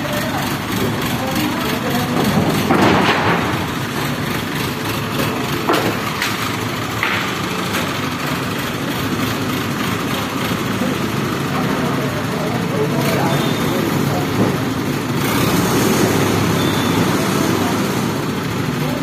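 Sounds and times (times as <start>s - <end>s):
crane diesel engine running: 0.0s - 19.0s.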